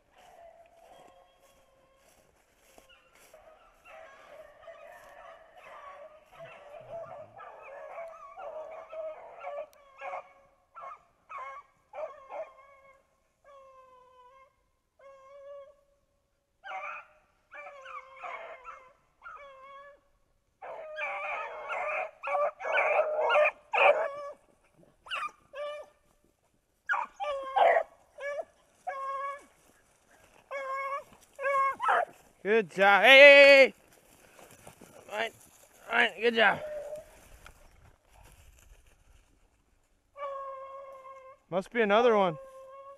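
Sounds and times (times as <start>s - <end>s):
dogs baying: 0.0s - 15.4s, 20.6s - 26.0s, 26.9s - 32.2s
dogs barking and yelping: 0.0s - 15.8s, 16.6s - 26.0s, 26.8s - 32.2s, 35.9s - 37.3s, 40.2s - 41.5s.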